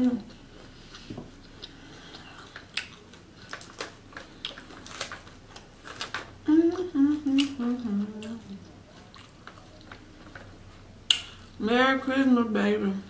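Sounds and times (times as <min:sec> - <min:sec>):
crunchy chewing: 0:00.0 - 0:11.6
woman humming: 0:06.4 - 0:08.6.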